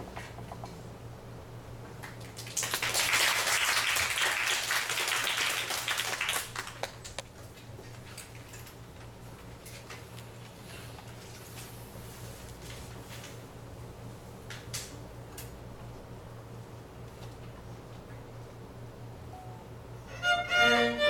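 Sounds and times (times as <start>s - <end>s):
audience applauding: 2.3s - 7.1s
small knocks and shuffles: 7.2s - 13.5s.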